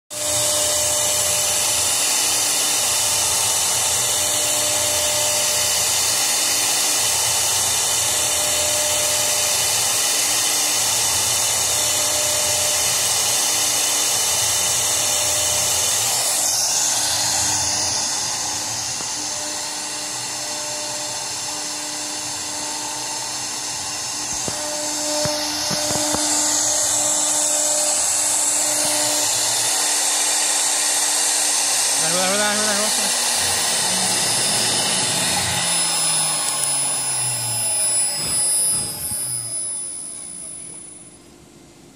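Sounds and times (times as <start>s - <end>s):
router spindle high-pitched whine: 0.1s - 41.9s
lower tone starting and stopping: 16.1s - 41.3s.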